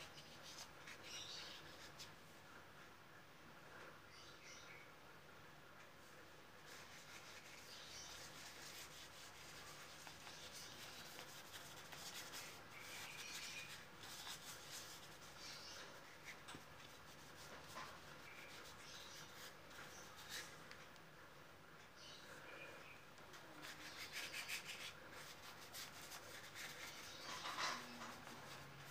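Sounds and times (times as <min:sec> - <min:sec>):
bristle brush rubbing on paper: 0:06.7 - 0:20.6, 0:23.5 - 0:28.9.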